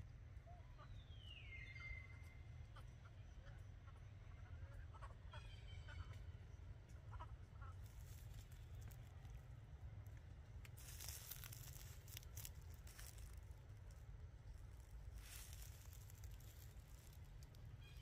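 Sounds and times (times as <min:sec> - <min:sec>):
low steady rumble: 0:02.1 - 0:18.0
dry leaves and twigs crackling: 0:07.7 - 0:18.0.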